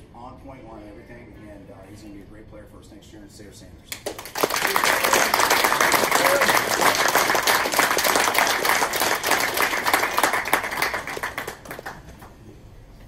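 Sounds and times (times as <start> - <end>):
audience applauding: 4.0 - 12.3.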